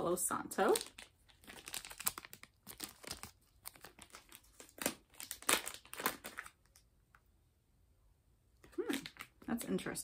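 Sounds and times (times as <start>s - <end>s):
plastic bag crinkling: 0.6s - 6.8s.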